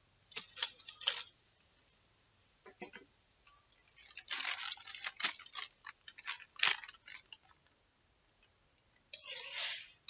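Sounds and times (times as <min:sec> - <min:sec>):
plastic packet crinkling: 0:00.3 - 0:01.3, 0:03.7 - 0:07.8.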